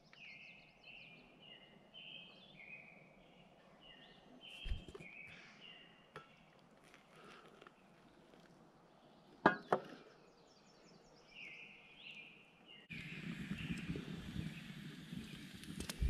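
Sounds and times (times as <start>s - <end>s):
campfire crackling: 6.4s - 9.0s, 12.9s - 16.0s.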